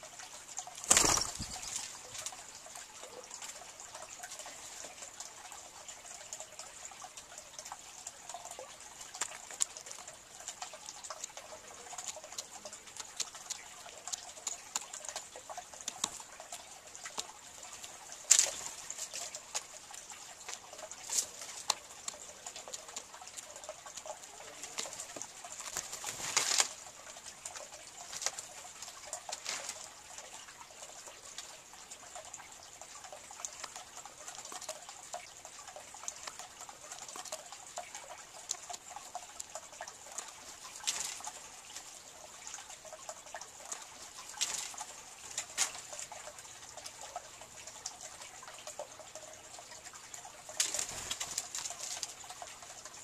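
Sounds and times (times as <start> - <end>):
bird pecking on log: 11.1 - 16.3.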